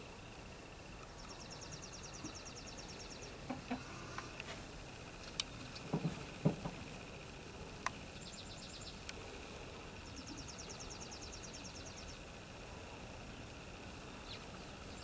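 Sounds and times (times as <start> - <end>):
hens clucking softly: 3.2 - 4.6.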